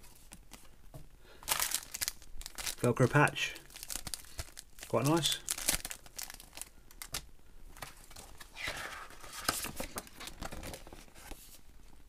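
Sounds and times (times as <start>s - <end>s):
catalogue rustling: 0.0s - 12.0s
plastic bags crinkling: 1.4s - 7.3s.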